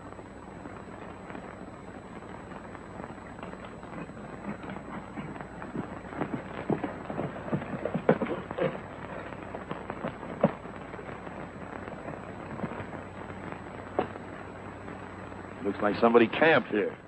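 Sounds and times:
old film soundtrack hiss: 0.0 - 17.0
horse hoofbeats on rocky ground: 2.1 - 14.2.

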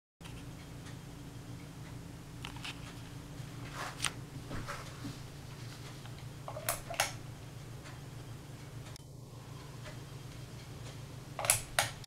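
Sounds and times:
ceiling fan motor humming: 0.2 - 12.0
pull-chain switch clicks: 11.4 - 12.0.

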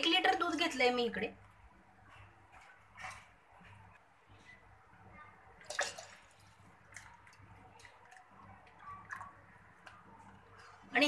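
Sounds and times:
milk pouring into metal pot: 5.6 - 10.9.

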